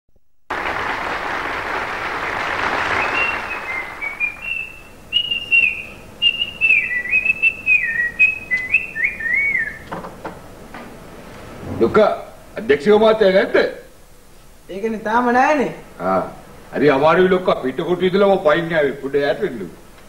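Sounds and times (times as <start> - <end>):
audience applause: 0.5 - 4.8
person whistling a tune: 3.0 - 9.8.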